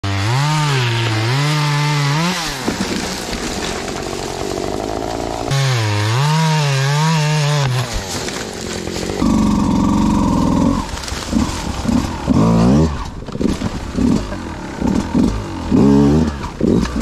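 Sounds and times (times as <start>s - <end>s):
dirt bike engine revving: 4.5s - 8.0s, 8.9s - 17.0s.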